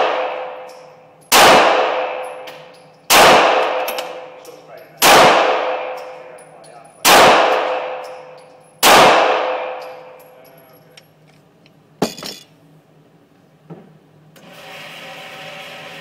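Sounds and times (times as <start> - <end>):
pistol shot echoing: 0.0 - 0.7, 1.3 - 2.4, 3.1 - 4.2, 5.0 - 6.1, 7.0 - 8.2, 8.8 - 10.1.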